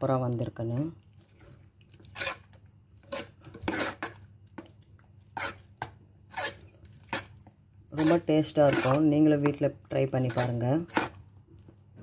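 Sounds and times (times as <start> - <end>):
metal spoon scraping a pot: 2.0 - 4.2, 5.3 - 5.7, 6.3 - 7.3, 8.0 - 9.2, 10.2 - 11.2.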